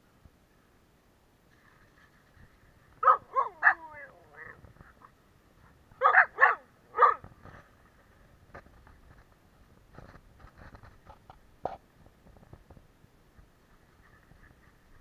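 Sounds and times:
large dog barking: 0:03.0 - 0:04.6, 0:06.0 - 0:07.2.

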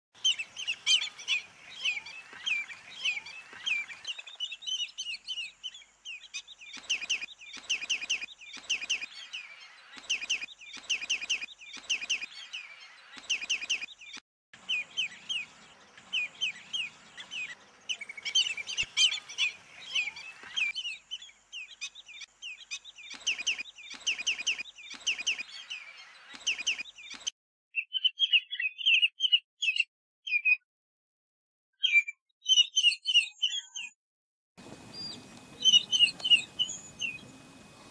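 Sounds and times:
bird piping calls: 0:00.2 - 0:30.5, 0:34.6 - 0:37.9.

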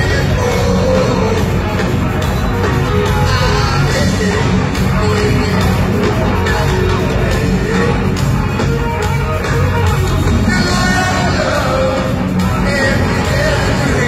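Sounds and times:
man singing lead vocals: 0:00.0 - 0:01.8, 0:02.9 - 0:08.6, 0:10.3 - 0:14.0
live rock band playing loud: 0:00.0 - 0:14.0.

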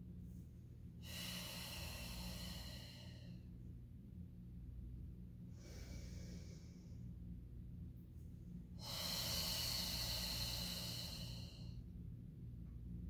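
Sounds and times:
woman breathing through mouth: 0:01.0 - 0:03.4, 0:05.5 - 0:07.0, 0:08.8 - 0:11.8.

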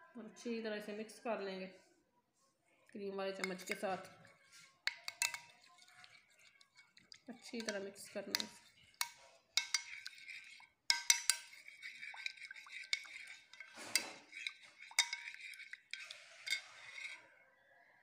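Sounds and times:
spoon stirring thick marinade: 0:03.3 - 0:17.3
spoon clinking on glass bowl: 0:03.4 - 0:17.2.

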